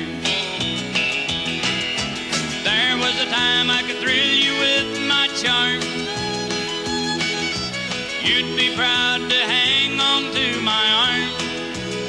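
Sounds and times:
country band playing: 0.0s - 12.0s
guitar: 0.0s - 12.0s
person singing: 2.6s - 6.3s, 8.2s - 12.0s.

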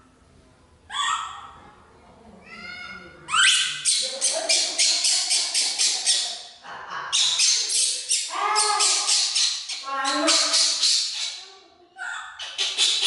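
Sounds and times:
baby monkey shrieking: 0.9s - 1.6s, 2.7s - 6.4s, 7.2s - 11.4s.

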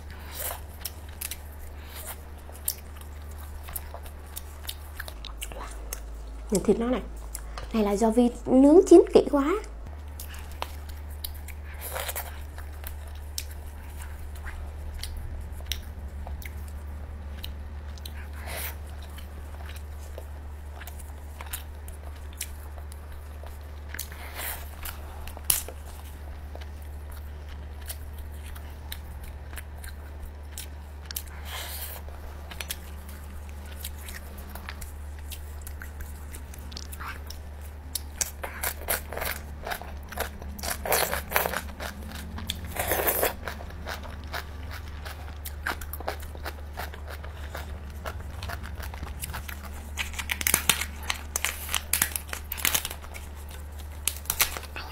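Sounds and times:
steady low hum: 0.0s - 54.9s
chewing and biting: 10.0s - 54.9s
shell cracking and crackling: 49.9s - 54.8s.

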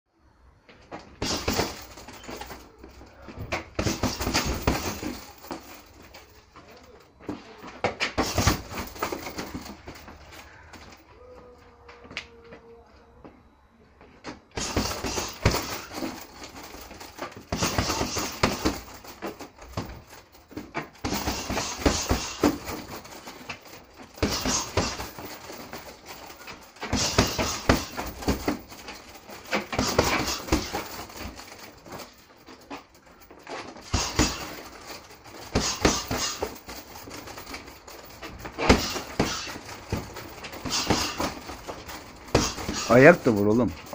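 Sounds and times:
punches on heavy bag: 1.2s - 2.4s, 3.6s - 5.7s, 8.1s - 9.8s, 14.6s - 16.8s, 17.4s - 20.0s, 20.9s - 23.2s, 24.1s - 28.8s, 29.5s - 31.5s, 33.8s - 37.6s, 38.3s - 43.2s
hard breathing: 1.2s - 12.0s, 14.6s - 43.9s.

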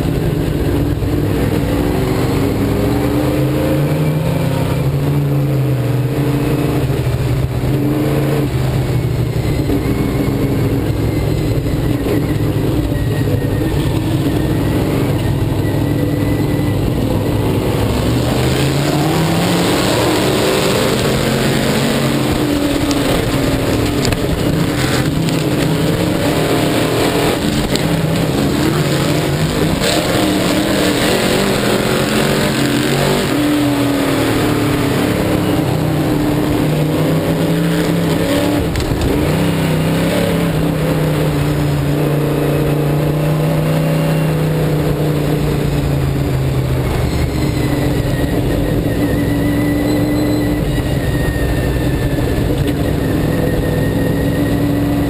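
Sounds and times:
race car engine revving: 0.0s - 55.0s
rush of noise: 0.0s - 55.0s.

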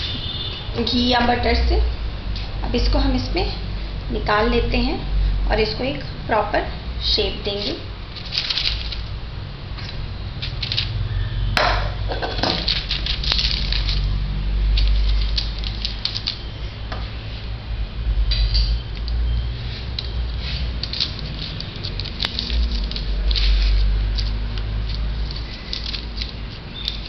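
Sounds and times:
paper rustling: 7.5s - 9.2s, 12.4s - 14.2s, 14.8s - 16.5s, 19.7s - 27.0s.

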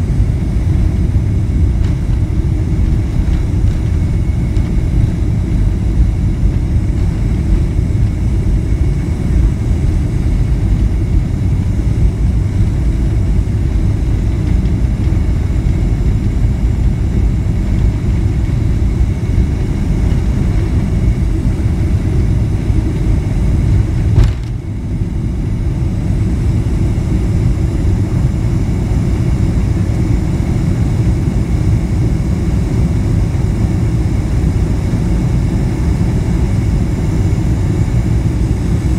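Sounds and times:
jet engines rumbling: 0.0s - 38.9s
sharp thump: 24.1s - 24.6s.

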